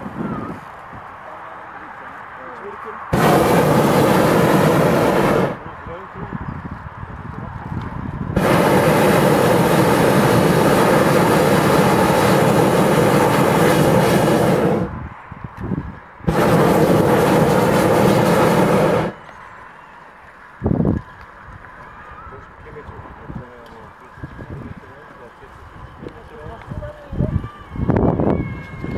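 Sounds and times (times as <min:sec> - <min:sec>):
propane burner blasts: 0:03.0 - 0:06.4, 0:07.2 - 0:19.3.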